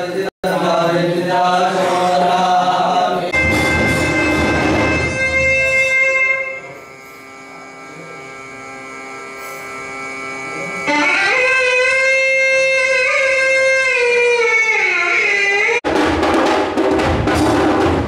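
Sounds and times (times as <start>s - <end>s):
steady held drone tone: 3.2s - 15.0s
sliding instrumental melody: 3.4s - 6.8s.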